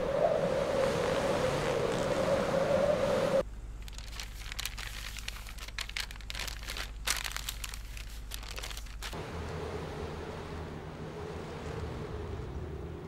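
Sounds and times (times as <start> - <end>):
low steady hum: 0.0 - 13.0
aluminium foil crinkling: 3.8 - 9.2.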